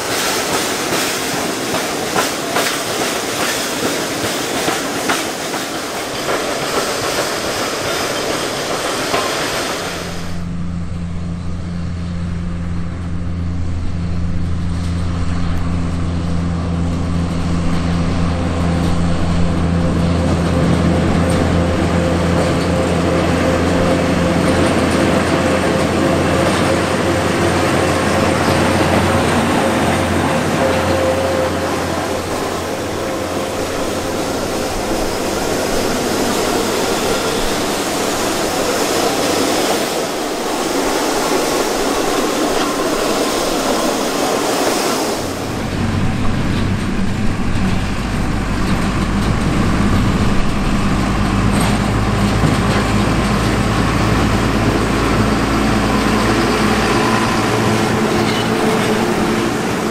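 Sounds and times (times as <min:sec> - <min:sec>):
diesel locomotive engine humming: 0:00.0 - 0:59.9
cane bins rolling on rails: 0:16.8 - 0:59.9.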